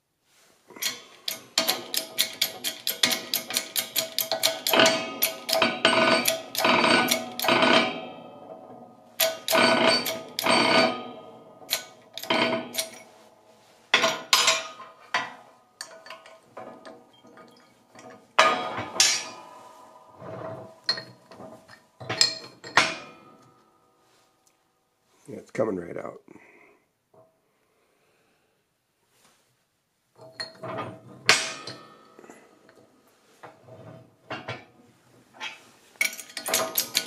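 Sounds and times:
metallic knocks and clanks: 0:00.8 - 0:13.3, 0:13.9 - 0:23.7, 0:30.2 - 0:32.8, 0:36.0 - 0:37.0.

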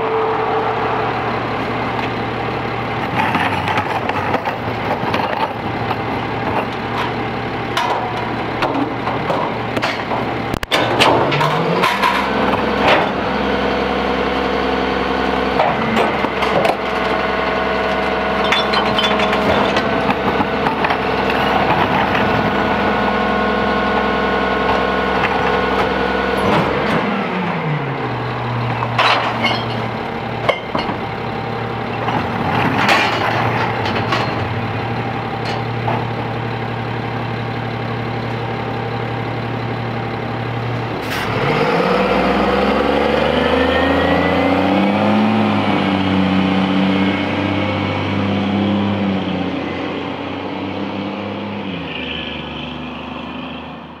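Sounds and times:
garbage truck diesel engine: 0:00.0 - 0:54.0
trash knocking in hopper: 0:03.0 - 0:13.4, 0:15.5 - 0:22.8, 0:28.7 - 0:36.4.

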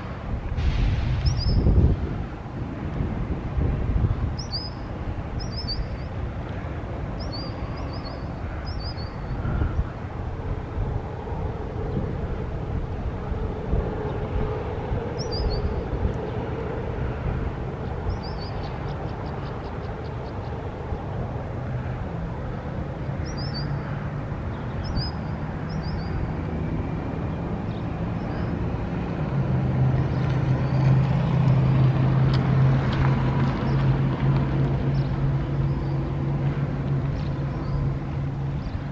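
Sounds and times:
road traffic noise: 0:00.0 - 0:38.9
vehicle engine drone: 0:00.0 - 0:38.9
bird chirps: 0:01.2 - 0:01.7, 0:04.4 - 0:06.1, 0:07.2 - 0:09.3, 0:15.2 - 0:15.8, 0:18.1 - 0:20.5, 0:23.2 - 0:23.8, 0:24.5 - 0:26.2.

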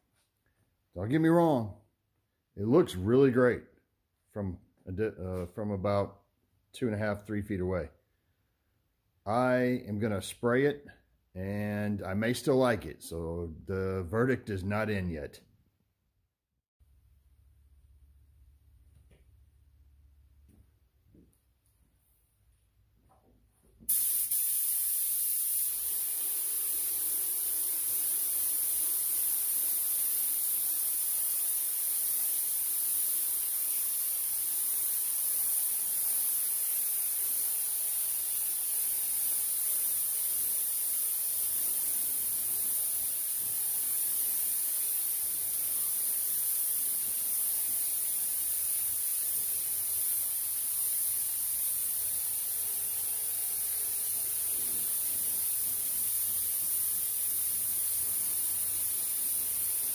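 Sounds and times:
compressed air hissing: 0:23.9 - 0:59.9.

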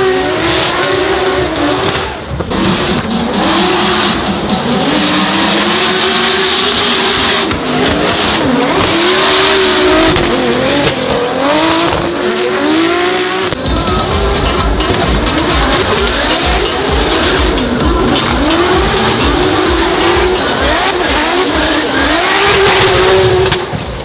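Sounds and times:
car engine revving hard: 0:00.0 - 0:24.0.

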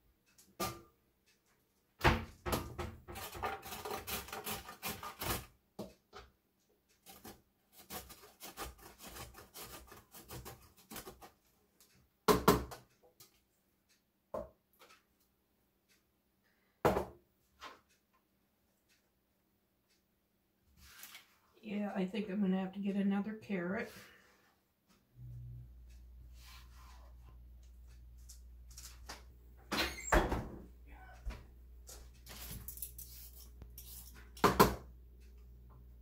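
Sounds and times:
carrot rasping on grater: 0:03.1 - 0:05.5, 0:07.0 - 0:11.4.

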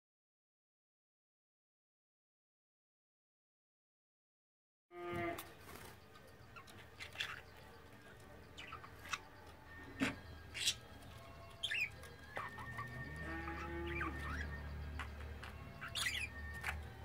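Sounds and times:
budgerigars chirping: 0:05.6 - 0:17.0.

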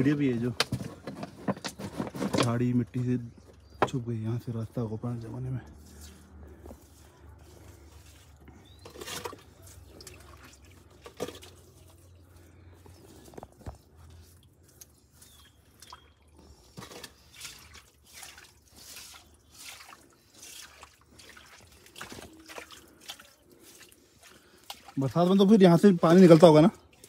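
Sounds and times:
water splashing and dripping: 0:05.6 - 0:27.0.

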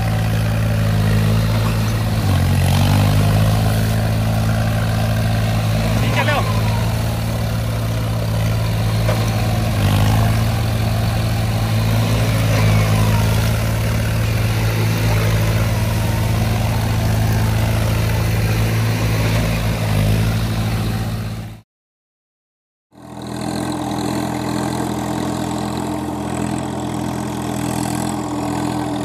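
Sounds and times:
second tractor engine running: 0:00.0 - 0:21.6, 0:23.0 - 0:29.0
tractor diesel engine under load: 0:00.0 - 0:21.6, 0:22.9 - 0:29.0
tyres churning through mud: 0:00.0 - 0:21.6, 0:23.0 - 0:29.0.

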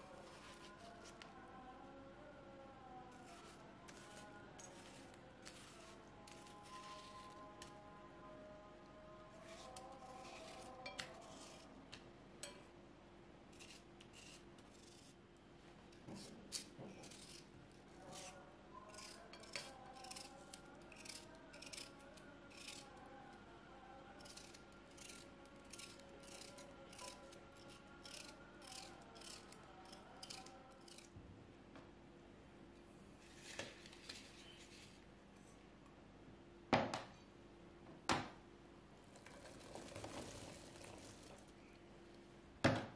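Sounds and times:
faint background music: 0:00.0 - 0:42.9
knife cutting watermelon rind: 0:03.2 - 0:07.7, 0:09.4 - 0:11.7, 0:13.5 - 0:15.2, 0:16.1 - 0:23.0, 0:24.2 - 0:31.1.

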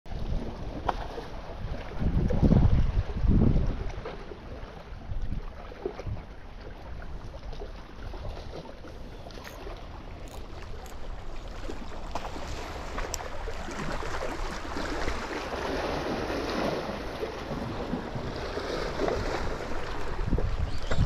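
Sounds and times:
wind: 0:00.0 - 0:21.0
small waves against rocks: 0:00.1 - 0:21.0
wind buffeting microphone: 0:00.1 - 0:21.0.

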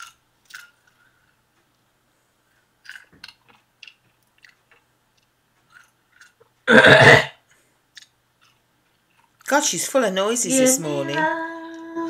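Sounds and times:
wet chewing and lip-smacking: 0:00.0 - 0:01.4, 0:02.8 - 0:06.6, 0:07.9 - 0:09.5.

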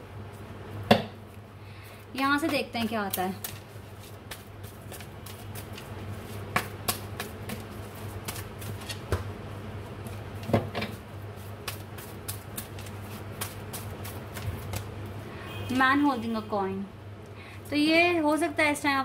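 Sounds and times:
cards being shuffled: 0:02.4 - 0:09.3, 0:10.0 - 0:15.0
card slaps: 0:06.5 - 0:07.6.

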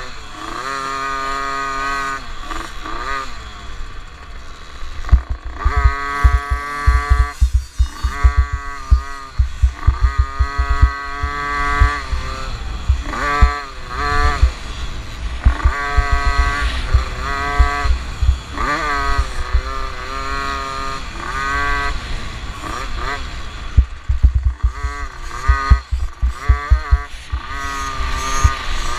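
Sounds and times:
motorbike engine revving: 0:05.0 - 0:28.9
low thumps: 0:05.1 - 0:12.0, 0:15.3 - 0:18.5, 0:23.8 - 0:27.4.

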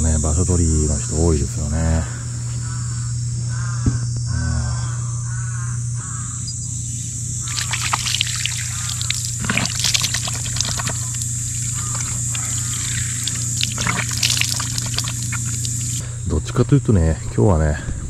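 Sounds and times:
crow cawing: 0:01.9 - 0:16.0
water splashing into sink: 0:07.4 - 0:16.0.

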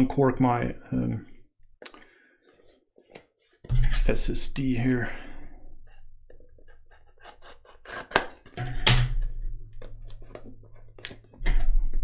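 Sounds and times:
knife scraping packaging: 0:06.6 - 0:08.6.

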